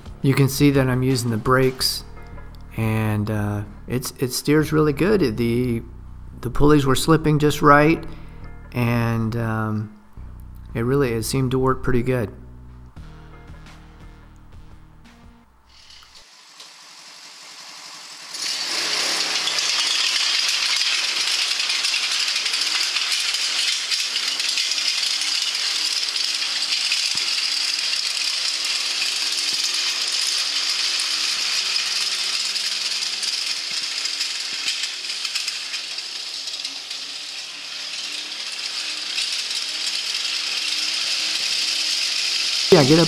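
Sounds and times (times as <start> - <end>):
metal tracks rattling on pavement: 18.3 - 43.0.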